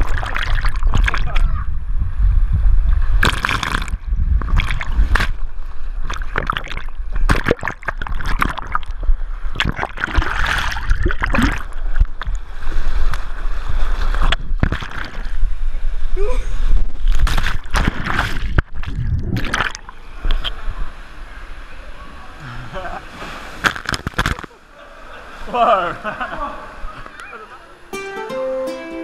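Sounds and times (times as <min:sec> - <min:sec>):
water splashing against camera: 0:00.0 - 0:01.7, 0:03.0 - 0:15.7, 0:16.7 - 0:20.9, 0:23.1 - 0:24.7
rushing water rumble: 0:00.0 - 0:27.9.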